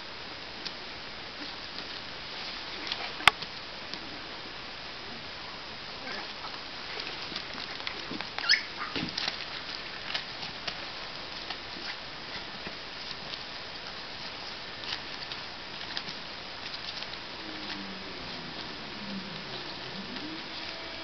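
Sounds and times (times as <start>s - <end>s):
puppies scuffling and pawing: 6.1s - 20.7s
small scratches and clicks: 6.5s - 21.0s
puppy squeaking: 8.4s - 8.9s.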